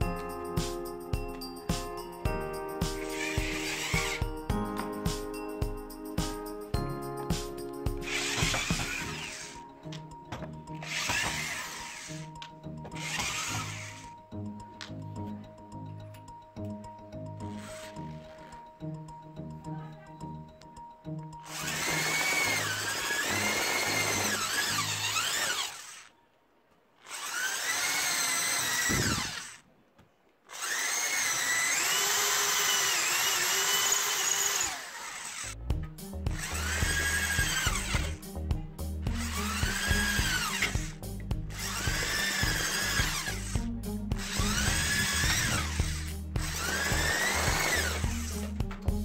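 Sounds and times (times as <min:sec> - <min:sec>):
electric drill motor whine: 0:03.0 - 0:04.5, 0:08.0 - 0:14.2, 0:17.5 - 0:18.7, 0:21.4 - 0:26.2, 0:27.0 - 0:29.6, 0:30.5 - 0:35.6, 0:36.4 - 0:38.2, 0:39.1 - 0:43.6, 0:44.2 - 0:48.6.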